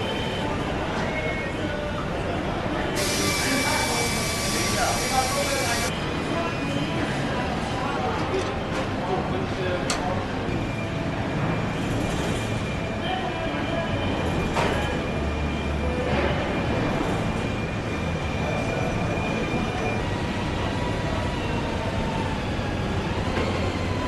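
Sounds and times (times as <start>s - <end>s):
factory machinery rumble: 0.0s - 24.0s
high machine whine: 3.0s - 6.0s.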